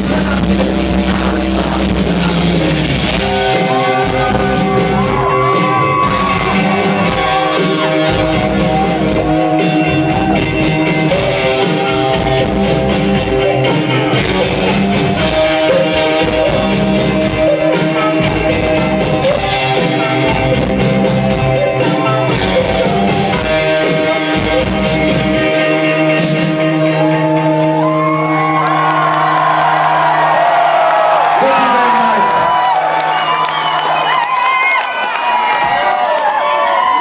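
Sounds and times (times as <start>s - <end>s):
person singing: 0.0s - 29.1s
bass guitar: 0.0s - 34.6s
drums: 0.0s - 37.0s
electric guitars: 0.0s - 37.0s.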